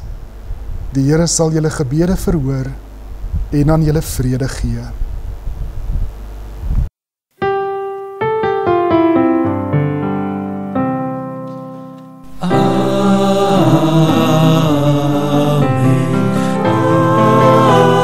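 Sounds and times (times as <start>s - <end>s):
fuller musical arrangement: 7.4s - 18.0s
piano single notes: 7.4s - 18.0s.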